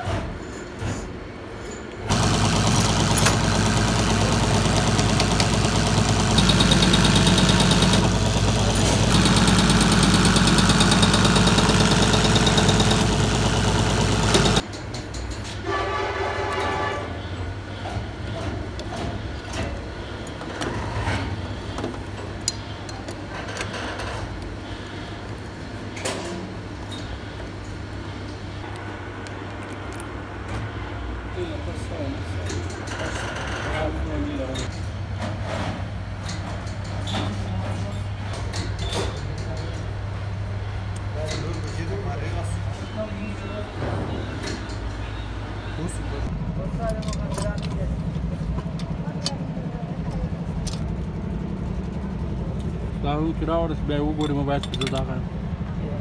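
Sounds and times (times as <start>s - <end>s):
loud mechanical hum: 0.0s - 56.0s
workshop clicks: 1.8s - 15.5s, 46.8s - 49.5s.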